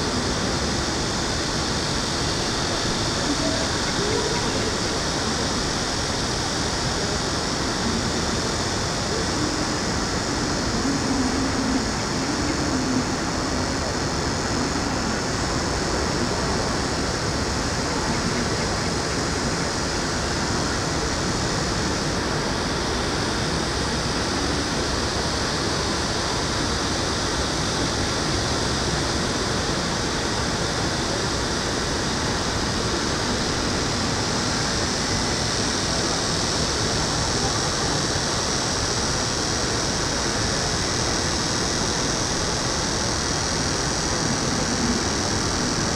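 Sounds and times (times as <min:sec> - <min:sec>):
high hiss: 0:00.0 - 0:45.9.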